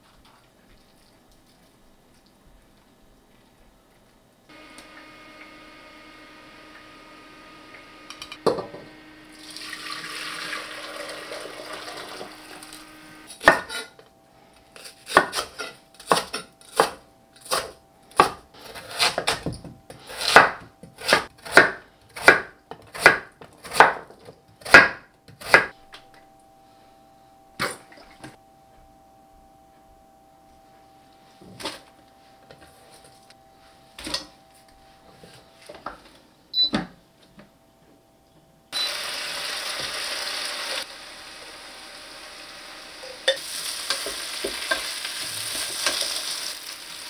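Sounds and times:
broth splashing and pouring: 9.3s - 12.3s
knife chopping on wooden board: 13.4s - 13.8s, 20.2s - 25.7s.

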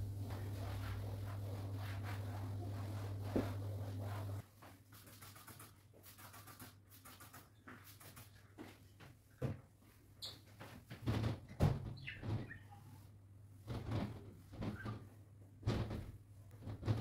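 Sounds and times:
low steady hum: 0.0s - 4.4s
knocks and bumps: 15.6s - 17.0s.

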